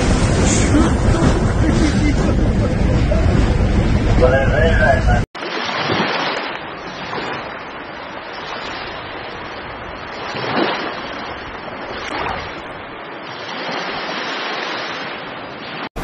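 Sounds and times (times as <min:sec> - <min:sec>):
surf breaking and water rushing: 0:00.0 - 0:16.0.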